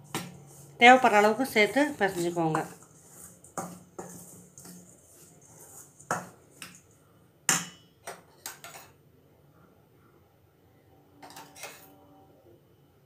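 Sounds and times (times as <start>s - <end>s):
spoon scraping steel bowl: 0.0s - 6.9s, 11.2s - 12.0s.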